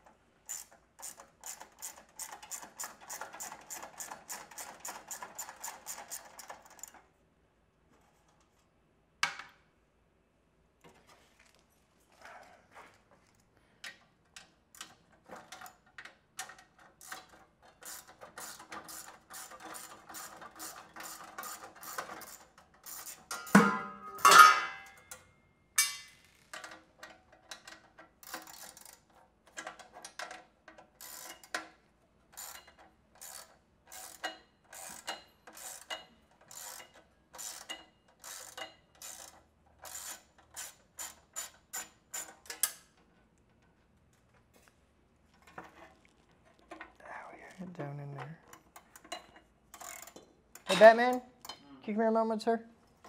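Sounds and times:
metallic clanks: 23.3s - 27.7s.

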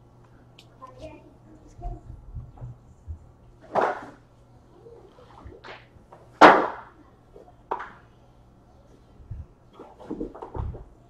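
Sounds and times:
soft low thumps: 1.8s - 3.4s.

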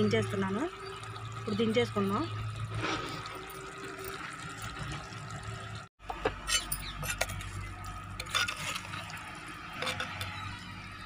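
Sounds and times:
spoon scraping clay pot: 6.3s - 10.5s.

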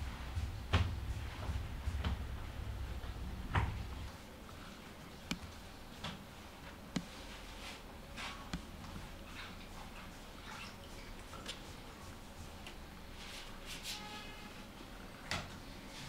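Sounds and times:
low hum: 0.0s - 5.8s.

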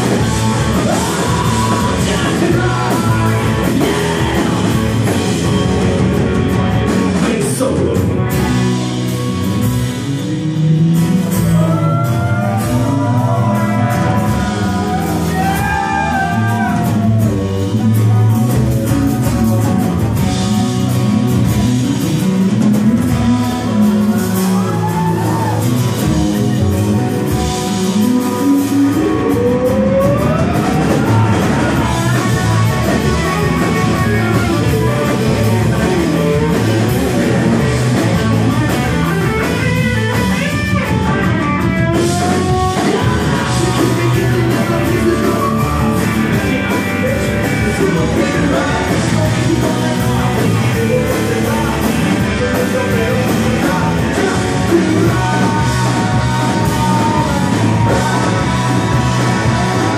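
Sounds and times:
person singing: 0.0s - 5.5s, 27.6s - 41.0s, 41.6s - 59.9s
rock band playing: 0.0s - 59.9s.

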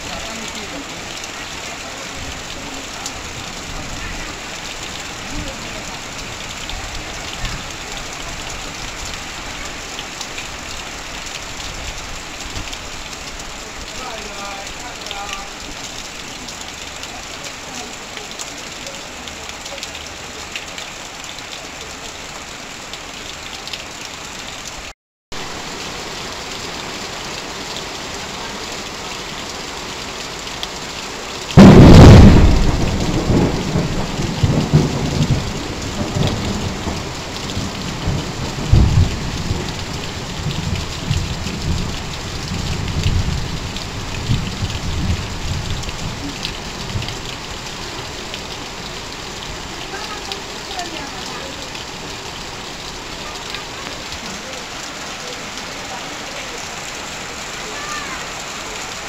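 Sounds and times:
heavy rain on metal roof: 0.0s - 59.0s
water pouring off roof: 0.0s - 59.0s
thunder rumbling: 31.6s - 47.2s.

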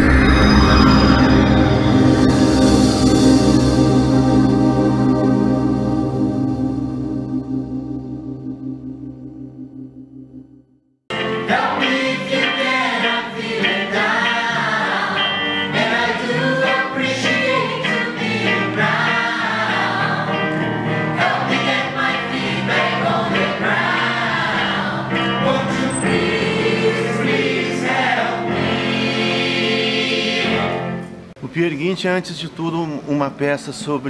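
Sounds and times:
instrumental backing: 0.0s - 31.5s
chorus singing: 11.1s - 31.3s.

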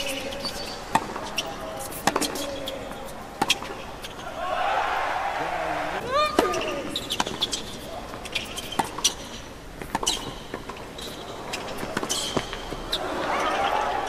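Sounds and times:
shoe squeaks on court: 0.0s - 4.2s, 6.5s - 13.5s
crowd noise: 0.0s - 8.5s, 11.2s - 14.0s
racket striking tennis ball: 0.9s - 2.6s, 8.2s - 9.2s, 9.8s - 10.8s, 11.5s - 13.0s.

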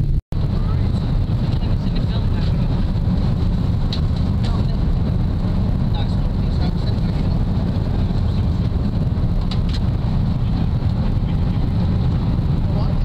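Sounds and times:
aircraft cabin engine rumble: 0.0s - 13.0s.

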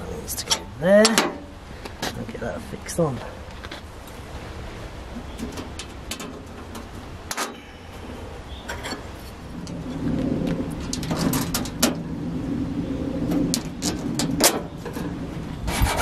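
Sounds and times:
steel panel clicks and knocks: 5.2s - 7.6s, 10.8s - 12.0s, 13.3s - 15.1s.

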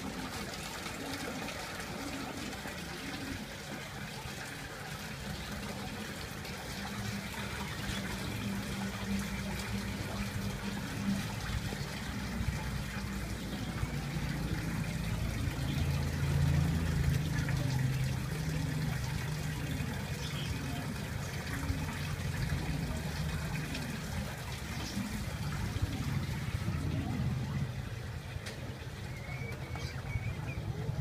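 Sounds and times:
water pump humming: 0.0s - 31.0s
water trickling and splashing: 0.0s - 31.0s.

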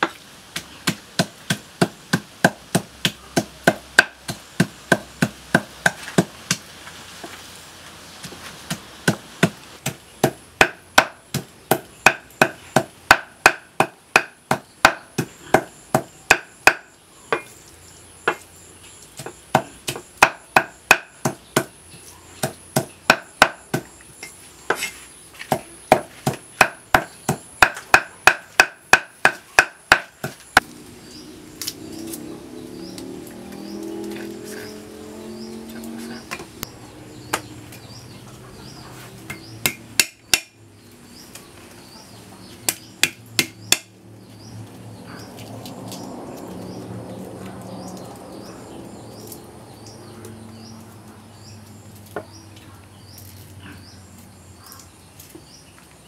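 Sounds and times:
cleaver chopping meat on wood: 0.0s - 6.6s, 8.2s - 17.5s, 19.2s - 21.8s, 22.4s - 23.9s, 25.5s - 30.4s, 39.3s - 40.6s, 42.6s - 44.0s.

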